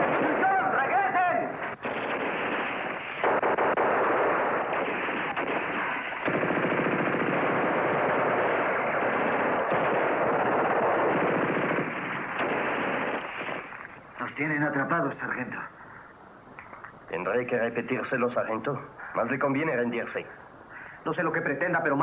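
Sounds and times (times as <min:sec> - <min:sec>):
machine-gun fire: 0:00.0 - 0:13.9.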